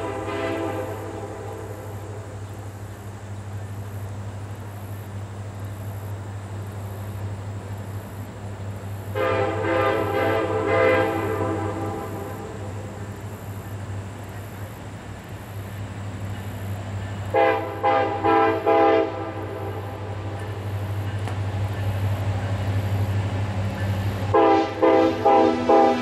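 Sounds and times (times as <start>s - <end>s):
locomotive air horn blasts: 0.0s - 2.1s, 9.1s - 12.7s, 17.3s - 20.2s, 24.3s - 26.0s
train rumble: 0.0s - 26.0s.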